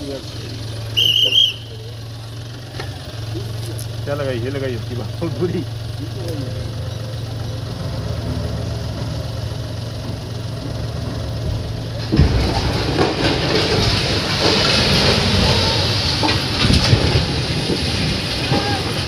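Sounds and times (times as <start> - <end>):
concrete rumbling and crackling: 0.0 - 19.0
low engine hum: 0.0 - 19.0
loud concrete crack: 9.0 - 19.0.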